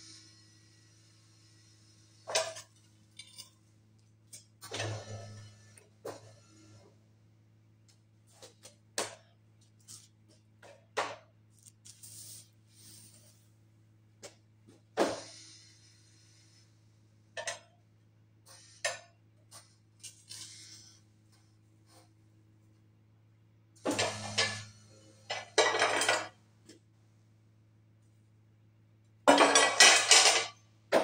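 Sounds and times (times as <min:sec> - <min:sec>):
hydraulic unit humming: 0:00.0 - 0:08.3, 0:23.7 - 0:26.4.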